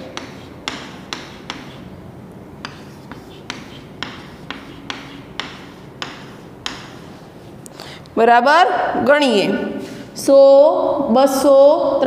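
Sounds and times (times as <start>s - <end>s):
chalk tapping on blackboard: 0.0s - 2.0s, 2.6s - 7.6s
low room hum: 0.0s - 12.0s.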